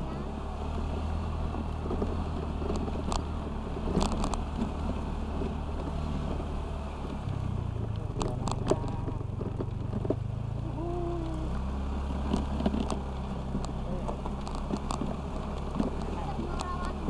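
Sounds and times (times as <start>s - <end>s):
scooter engine running: 0.0s - 17.0s.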